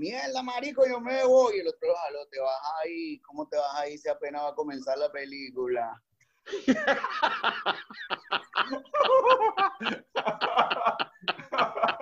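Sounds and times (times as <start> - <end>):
men laughing: 6.5 - 12.0.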